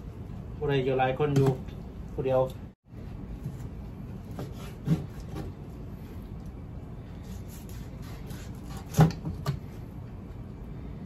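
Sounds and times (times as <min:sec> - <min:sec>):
knife slicing meat: 0:04.3 - 0:05.5, 0:07.2 - 0:09.2.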